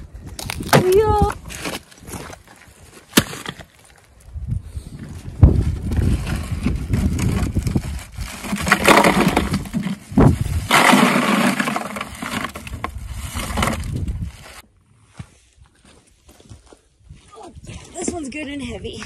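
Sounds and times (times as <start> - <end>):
wind rumbling on microphone: 0.0 - 2.3, 4.1 - 10.8, 12.5 - 14.6
ice cubes rattling into cooler: 7.0 - 14.0.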